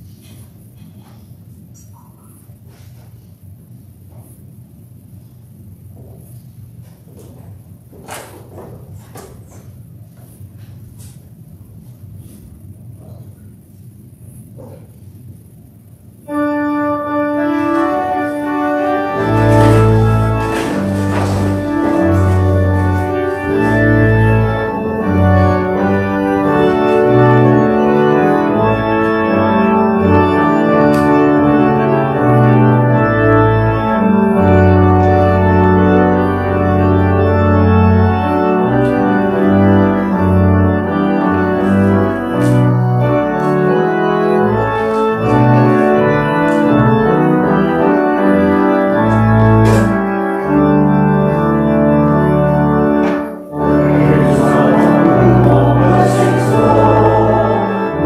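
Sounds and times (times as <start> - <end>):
church organ chords: 16.1 - 58.0.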